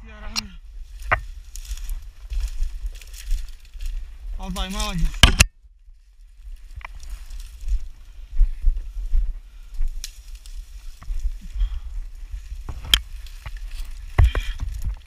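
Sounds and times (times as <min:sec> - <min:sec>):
brush rustling and scraping: 0:12.2 - 0:15.0.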